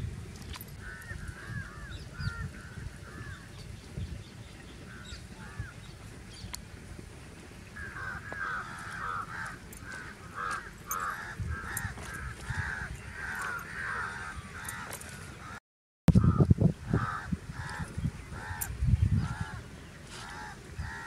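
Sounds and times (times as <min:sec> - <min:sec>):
crows cawing: 0:00.8 - 0:03.4, 0:07.8 - 0:15.6, 0:16.2 - 0:18.7, 0:20.2 - 0:21.0.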